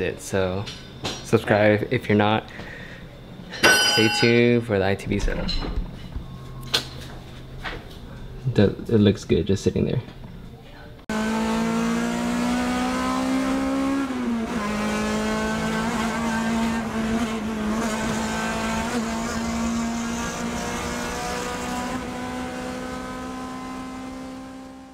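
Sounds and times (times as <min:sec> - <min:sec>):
car engine at high revs: 0:11.1 - 0:24.9.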